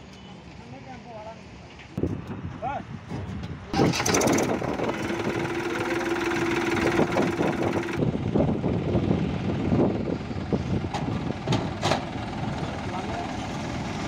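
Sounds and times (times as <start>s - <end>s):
tractor diesel engine idling: 3.8s - 14.0s.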